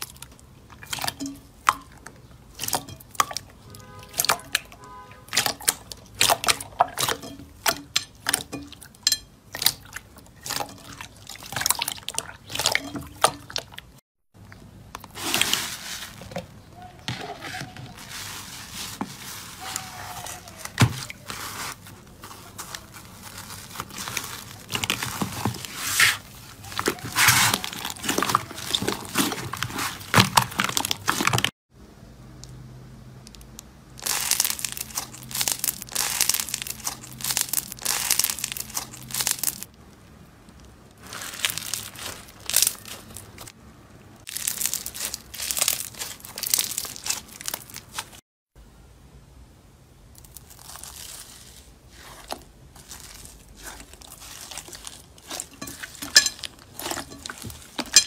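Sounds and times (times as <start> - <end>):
slime crackling and popping: 33.3 - 43.5, 44.2 - 48.2, 50.1 - 58.0.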